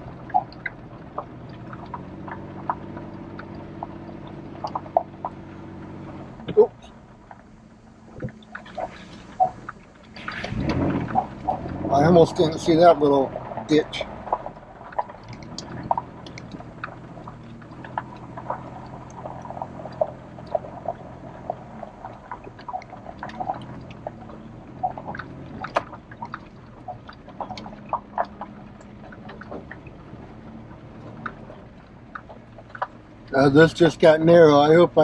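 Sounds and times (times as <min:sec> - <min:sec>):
truck engine running: 0:00.0 - 0:35.0.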